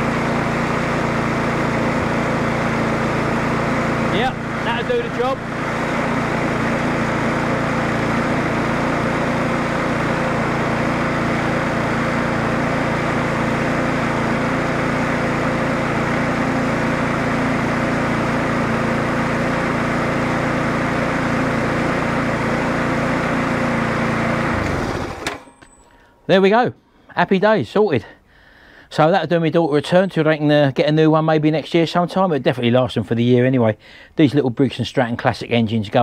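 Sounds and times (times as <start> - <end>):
lawnmower engine running: 0.0 - 26.1.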